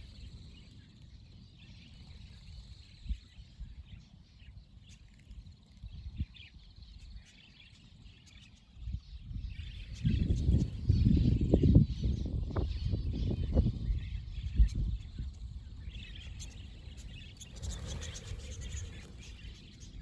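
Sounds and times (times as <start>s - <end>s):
budgerigars chattering: 14.4s - 20.0s.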